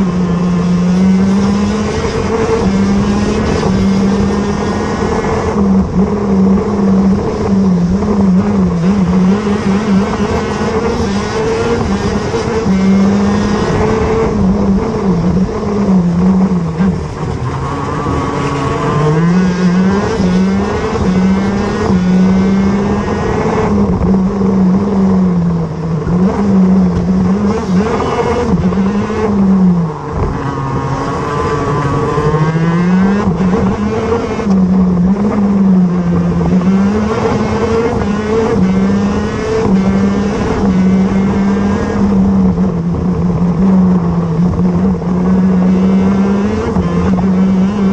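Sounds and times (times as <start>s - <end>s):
kart two-stroke engine racing: 0.0s - 47.9s.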